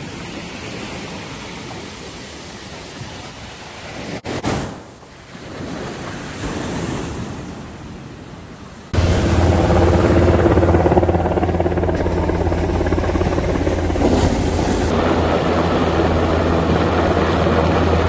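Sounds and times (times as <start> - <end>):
helicopter rotor and turbine: 8.9 - 18.0.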